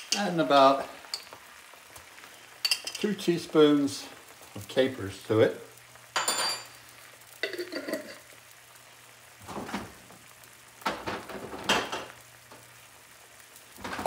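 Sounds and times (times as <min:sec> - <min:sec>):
stock simmering and sizzling: 0:00.0 - 0:14.0
metal utensil clinking on pan: 0:02.6 - 0:03.1, 0:06.2 - 0:06.7.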